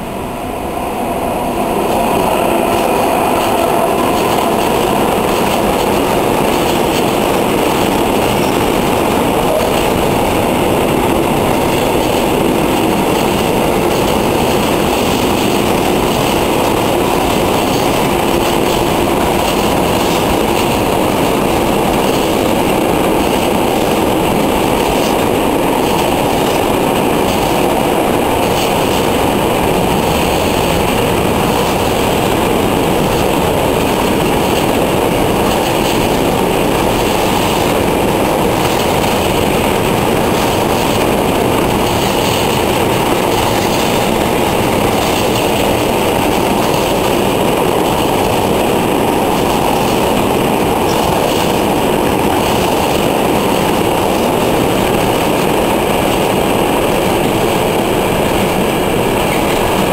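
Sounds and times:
freight train rolling on rails: 0:00.0 - 0:59.9.

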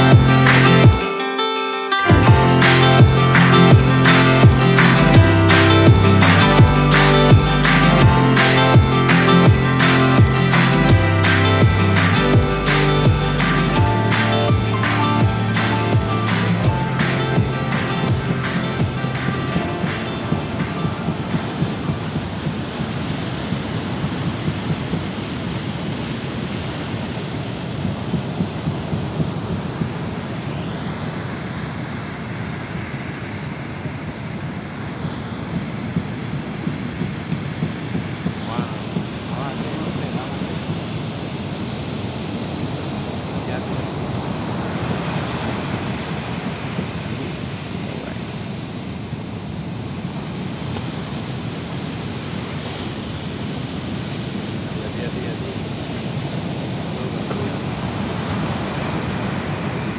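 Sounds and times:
heavy surf breaking: 0:00.0 - 0:59.9
wind rumbling on microphone: 0:19.6 - 0:59.9.

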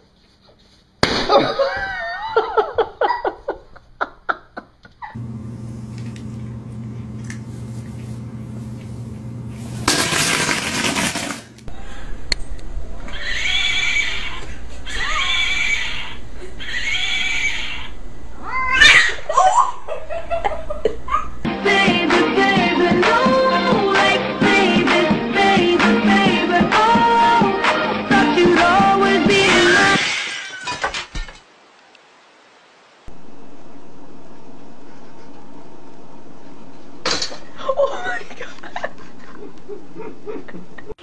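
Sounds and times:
steady low hum: 0:05.2 - 0:10.3, 0:11.4 - 0:16.7, 0:33.1 - 0:41.0
cat yowling: 0:13.1 - 0:19.7.

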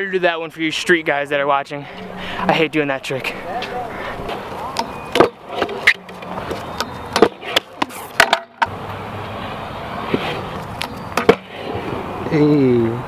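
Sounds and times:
scooter wheels rolling on concrete: 0:00.6 - 0:13.0
scooter clacking on concrete: 0:03.5 - 0:08.7.

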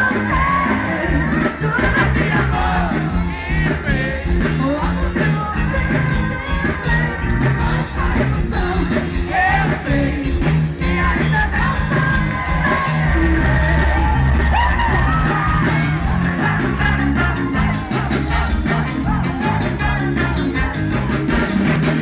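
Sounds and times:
woman singing: 0:00.0 - 0:03.2, 0:04.4 - 0:14.1
live band dance beat: 0:00.0 - 0:22.0.

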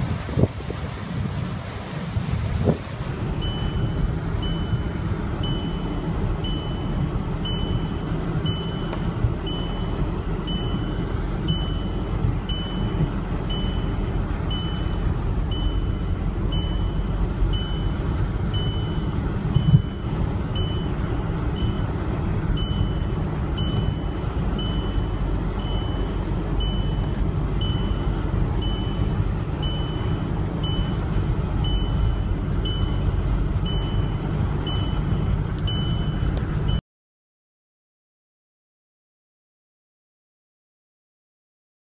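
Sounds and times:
gale buffeting a car: 0:00.0 - 0:36.8
high electronic warning beep: 0:03.4 - 0:36.8.

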